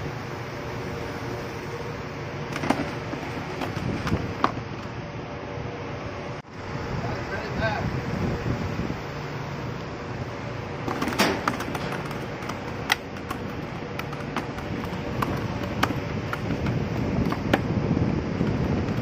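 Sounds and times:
wind noise: 0:02.6 - 0:05.2, 0:06.5 - 0:19.0.

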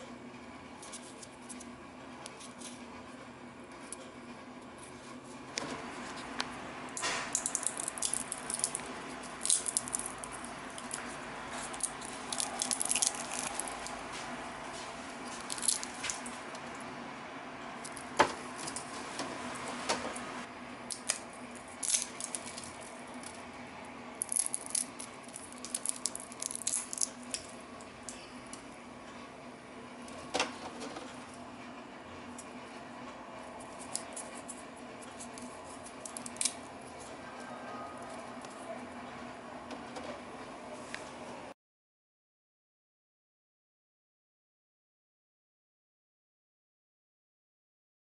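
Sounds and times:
dry pieces crackling and rattling: 0:07.0 - 0:14.0, 0:15.3 - 0:16.7, 0:20.9 - 0:23.4, 0:24.2 - 0:28.2, 0:33.6 - 0:37.2.

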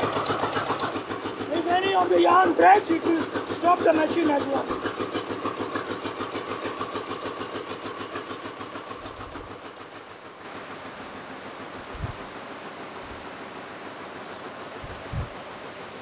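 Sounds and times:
weaving loom beating rhythmically: 0:00.0 - 0:09.6
mill noise hiss: 0:10.2 - 0:16.0.

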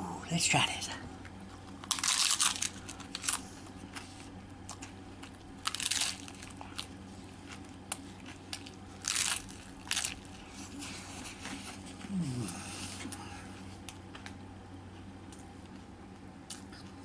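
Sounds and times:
crunching bites of taco shell: 0:01.6 - 0:04.0, 0:04.6 - 0:10.5.

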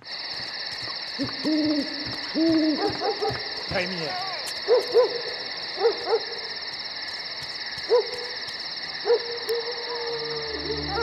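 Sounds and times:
owl hooting: 0:01.2 - 0:03.4
high pulsing drone: 0:10.1 - 0:11.0.

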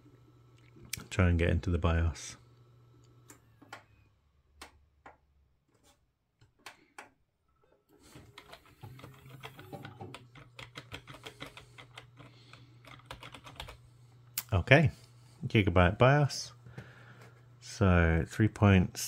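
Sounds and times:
computer fan hum: 0:00.0 - 0:07.2, 0:07.8 - 0:19.0
keyboard key tapping rapidly: 0:08.4 - 0:13.8.

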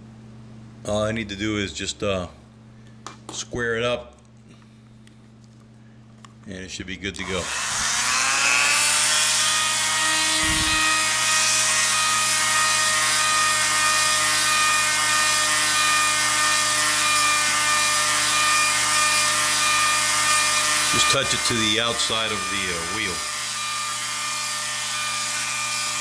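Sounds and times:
rotary tool whining: 0:07.2 - 0:26.0.

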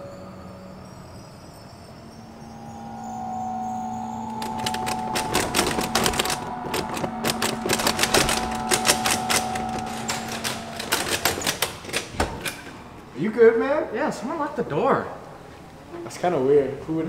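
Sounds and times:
steady held tone: 0:00.0 - 0:13.2.

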